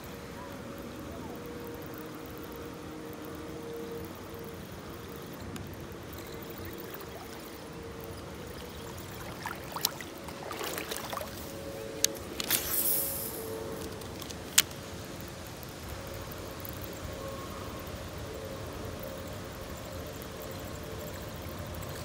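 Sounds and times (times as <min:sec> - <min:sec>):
water splashing and trickling: 0:05.8 - 0:14.7.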